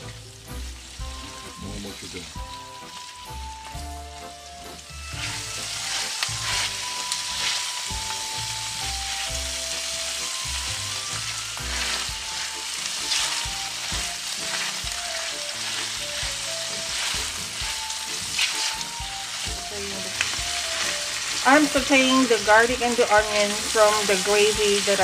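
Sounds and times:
onions sizzling in a skillet: 0.0 - 25.0
spatula scraping a skillet: 5.1 - 8.7, 11.1 - 22.0.

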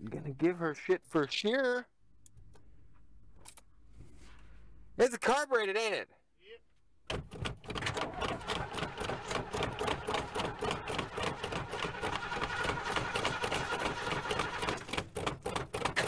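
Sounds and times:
starter cranking engine: 7.4 - 16.0.

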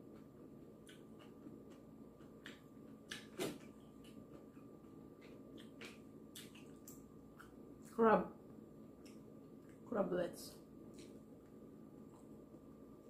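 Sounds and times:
person chewing: 0.0 - 8.0.

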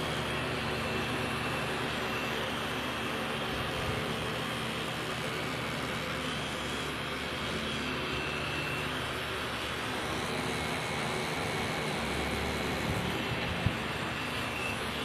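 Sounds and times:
tattoo machine buzzing: 9.9 - 14.9.

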